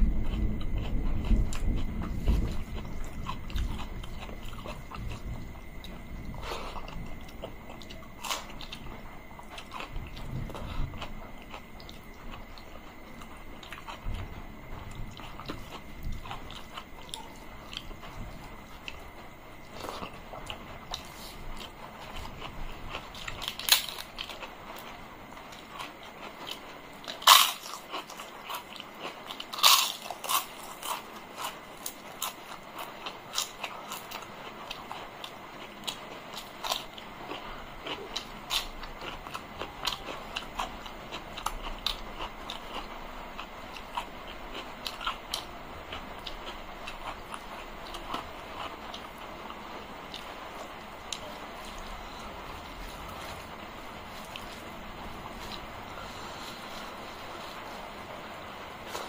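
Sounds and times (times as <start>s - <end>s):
wet chewing: 0.1s - 59.0s
loud sharp crunches: 25.7s - 34.2s.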